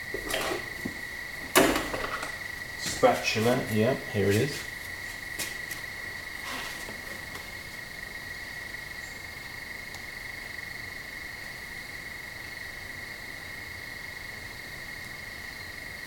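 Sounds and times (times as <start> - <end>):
crickets chirping: 0.0 - 16.0
faint rustle: 2.8 - 7.8.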